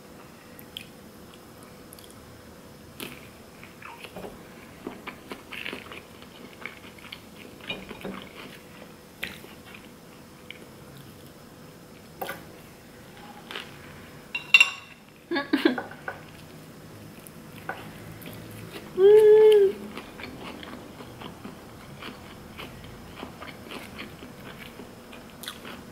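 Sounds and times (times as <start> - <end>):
person chewing: 19.8 - 25.9.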